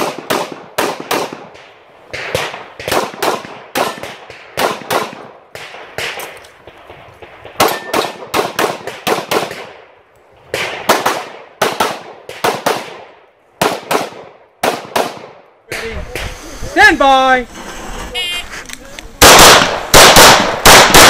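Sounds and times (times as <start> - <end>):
pistol shots in fast strings: 19.2 - 21.0.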